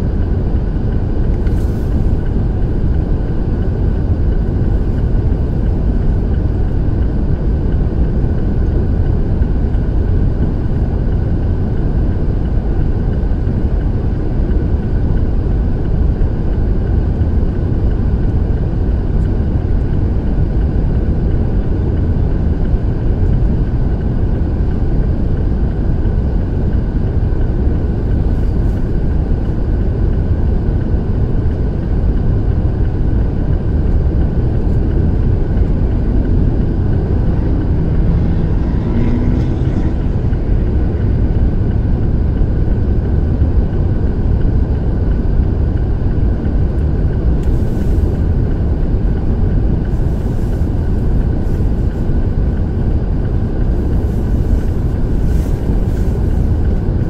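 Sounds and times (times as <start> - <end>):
cars and trucks passing: 34.4 - 44.0, 47.3 - 57.0.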